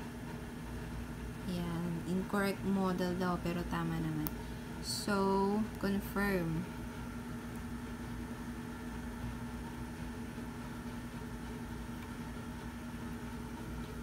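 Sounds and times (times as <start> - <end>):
steady low appliance hum: 0.0 - 14.0.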